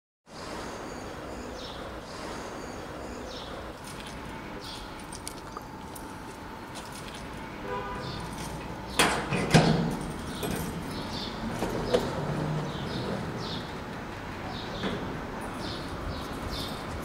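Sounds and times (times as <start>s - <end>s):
car keys jangling: 4.9s - 7.4s, 9.9s - 11.1s, 15.4s - 17.0s.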